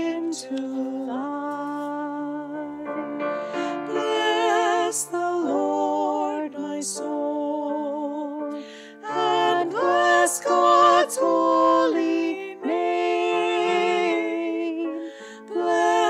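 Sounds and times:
slow choral chant: 0.0 - 8.4, 9.0 - 16.0.

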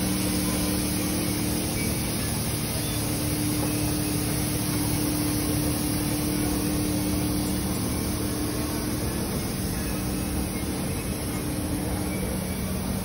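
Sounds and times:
blower humming: 0.0 - 13.0.

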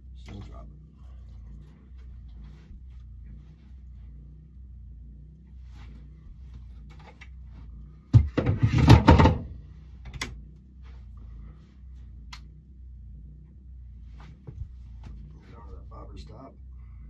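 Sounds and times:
steady low hum: 0.0 - 17.0
knocking and scraping on wood: 8.1 - 9.5.

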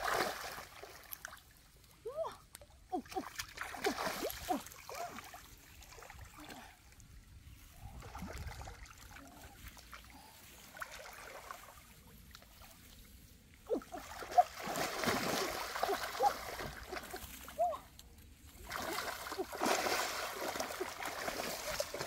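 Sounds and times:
hands splashing in muddy water: 13.9 - 17.6, 18.5 - 22.0.

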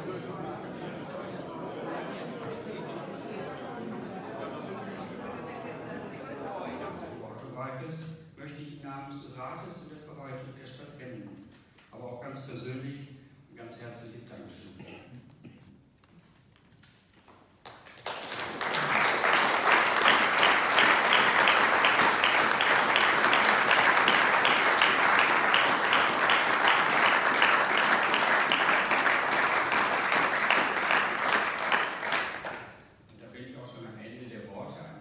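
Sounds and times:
audience applauding: 17.6 - 32.9.

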